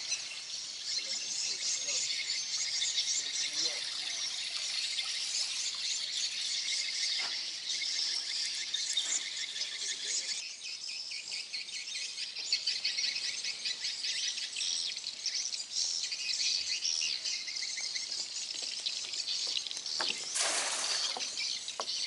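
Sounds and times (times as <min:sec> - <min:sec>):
insects and birds chirping: 0:00.0 - 0:22.0
net splashing into water: 0:20.4 - 0:21.4.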